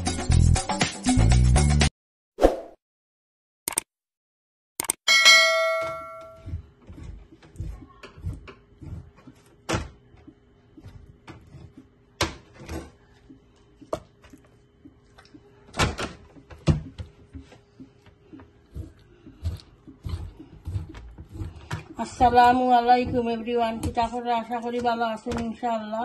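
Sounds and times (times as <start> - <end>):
kitchen knocks and clatter: 15.7 - 17.5.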